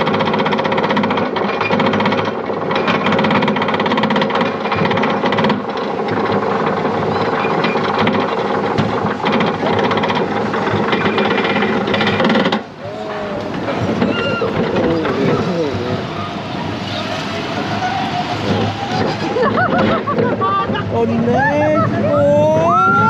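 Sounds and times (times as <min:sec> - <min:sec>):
lift chain clatter: 0:00.0 - 0:12.6.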